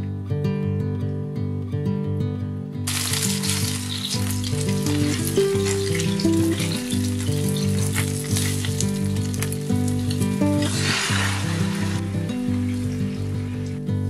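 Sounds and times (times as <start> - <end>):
food sizzling in hot oil: 2.9 - 14.0.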